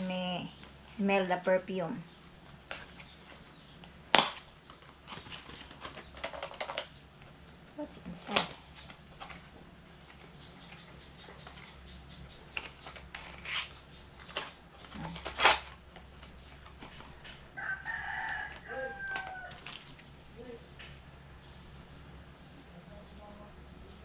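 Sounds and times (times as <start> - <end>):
rooster crowing: 17.5 - 19.9.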